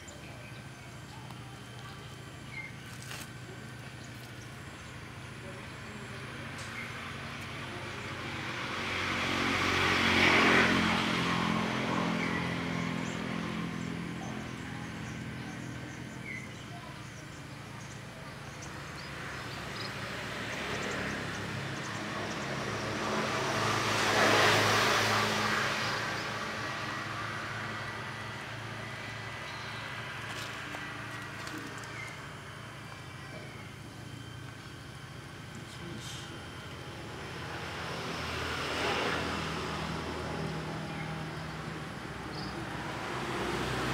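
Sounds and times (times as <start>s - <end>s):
motor vehicles passing: 0.0s - 43.9s.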